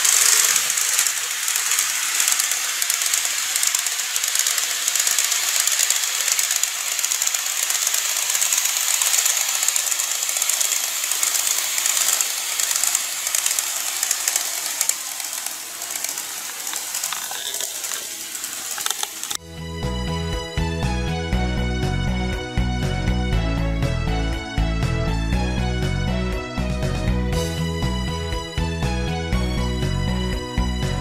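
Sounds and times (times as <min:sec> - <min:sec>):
model train rattling hiss: 0:00.0 - 0:19.4.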